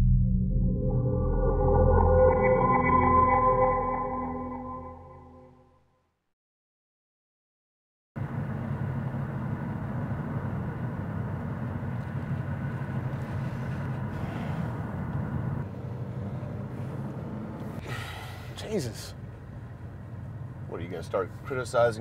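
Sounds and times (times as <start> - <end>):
road and engine noise in car: 8.2 - 22.0.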